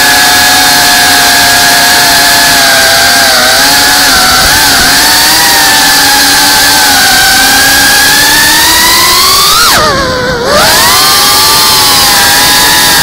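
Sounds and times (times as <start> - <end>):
drone motors and propellers whining: 0.0 - 13.0.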